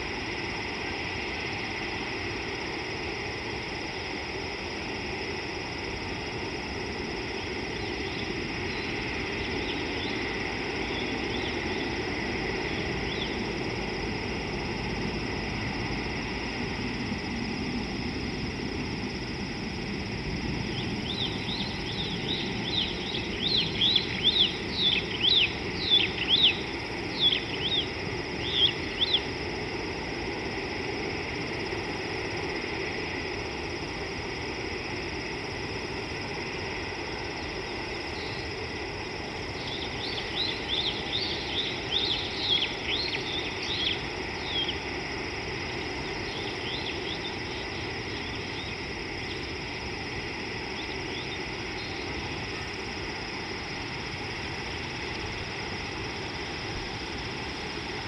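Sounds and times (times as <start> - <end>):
outdoor background hum: 0.0 - 58.0
bird chirping: 20.8 - 29.2.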